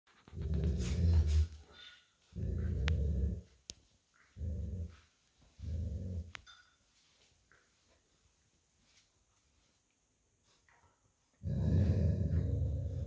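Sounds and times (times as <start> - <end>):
dog growling: 0.2 - 1.6, 2.3 - 3.5, 4.3 - 5.0, 11.4 - 13.0.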